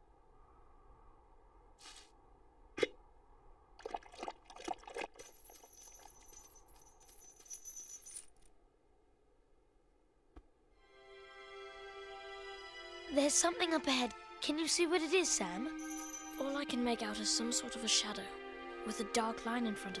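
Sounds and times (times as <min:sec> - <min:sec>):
metallic clinking: 0:05.2 - 0:08.5, 0:15.8 - 0:16.4
high shimmering ring: 0:15.7 - 0:16.6.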